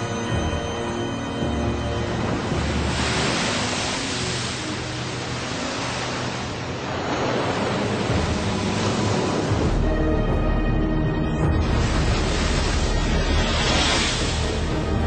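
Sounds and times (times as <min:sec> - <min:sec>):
water splashing: 0:01.3 - 0:09.9, 0:11.5 - 0:15.0.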